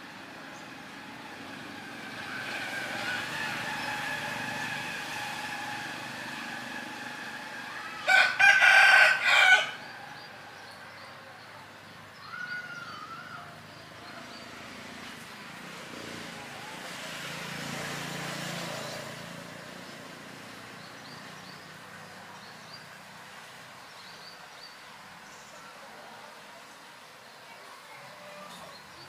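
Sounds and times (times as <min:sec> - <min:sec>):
small birds chirping: 0:09.7 - 0:16.4, 0:18.3 - 0:29.0.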